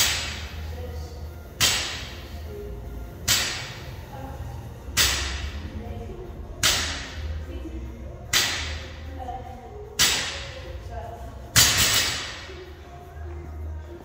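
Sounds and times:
barbell striking rubber floor: 1.6s - 2.1s, 3.2s - 3.8s, 6.6s - 7.2s, 8.3s - 8.8s, 11.6s - 12.5s.

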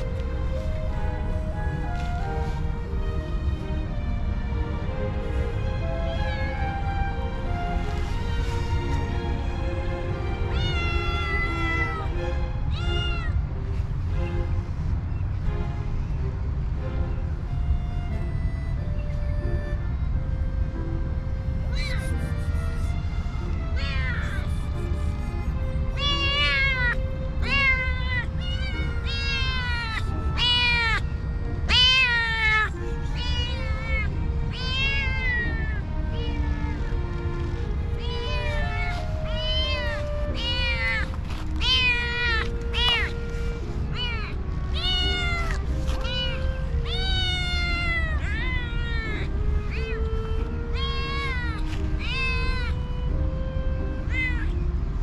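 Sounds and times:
kittens meowing: 10.4s - 13.4s, 21.7s - 23.0s, 23.8s - 52.9s, 53.9s - 54.5s.

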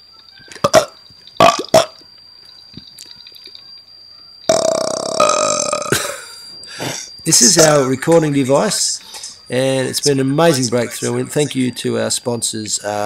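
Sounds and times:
burps: 0.6s - 2.0s, 4.5s - 6.1s.

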